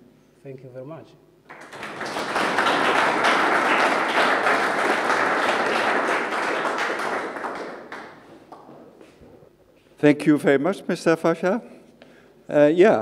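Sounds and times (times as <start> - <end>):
audience applauding: 1.5 - 8.8.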